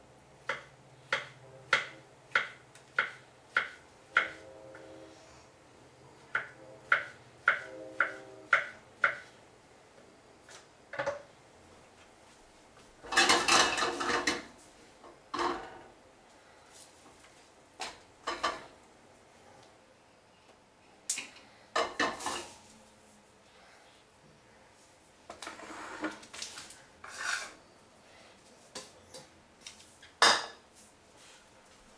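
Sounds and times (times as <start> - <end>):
pan and dishes set down: 13.1 - 14.5.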